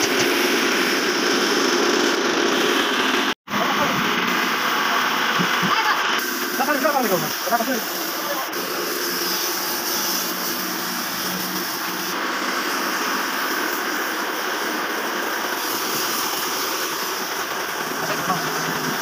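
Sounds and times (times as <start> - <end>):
machine humming: 0.0 - 19.0
paint spray gun hissing: 4.3 - 19.0.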